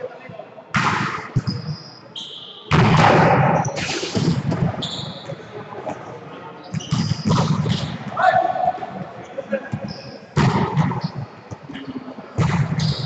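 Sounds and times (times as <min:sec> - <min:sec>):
sneakers squeaking on floor: 0:01.4 - 0:02.7, 0:03.6 - 0:05.6, 0:06.6 - 0:08.1.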